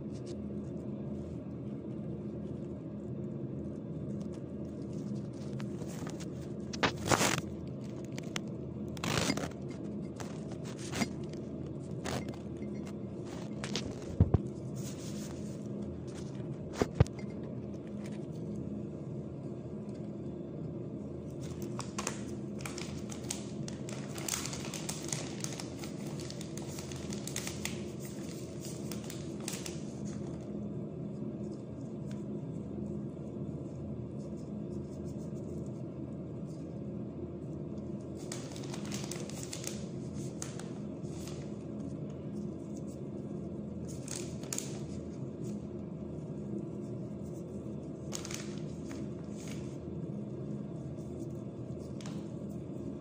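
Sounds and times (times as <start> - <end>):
steady low hum: 0.0 - 53.0
plastic crinkling: 4.8 - 17.2, 21.4 - 30.5, 38.1 - 41.6, 43.8 - 45.6, 47.4 - 49.8.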